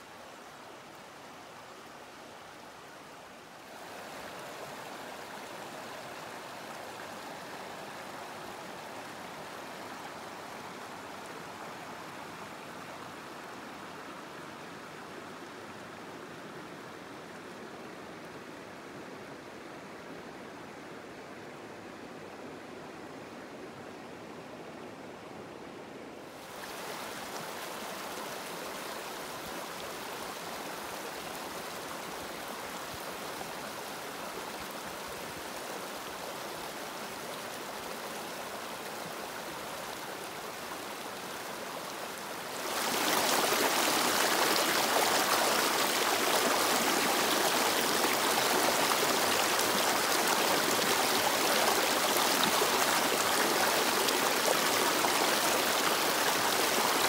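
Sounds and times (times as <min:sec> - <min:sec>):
river water rushing: 0:00.0 - 0:57.0.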